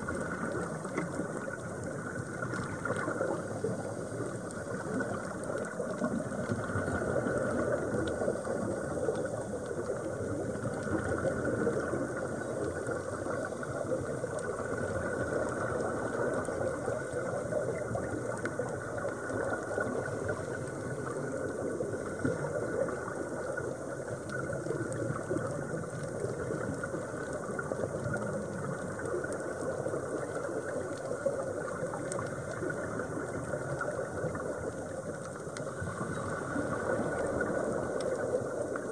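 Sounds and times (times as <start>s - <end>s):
fine underwater crackle: 0.0s - 38.9s.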